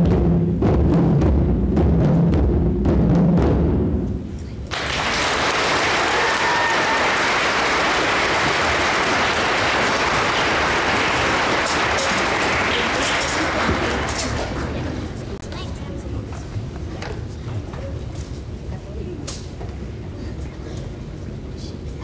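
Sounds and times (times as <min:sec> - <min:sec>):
audience applause: 0:04.7 - 0:15.1.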